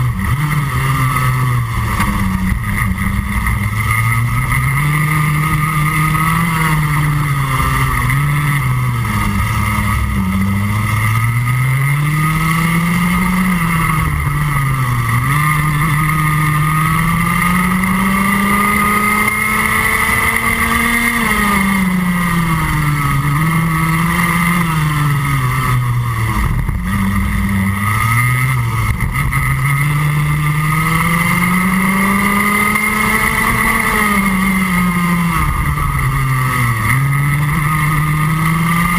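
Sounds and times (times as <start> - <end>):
kart engine at racing speed: 0.0 - 38.9.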